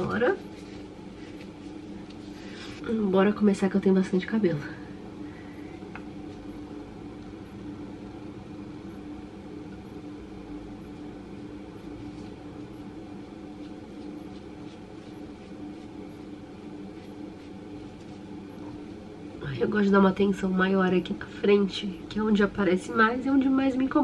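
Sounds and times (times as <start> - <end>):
mechanical hum: 0.0 - 24.0
brush brushing hair: 13.1 - 18.9.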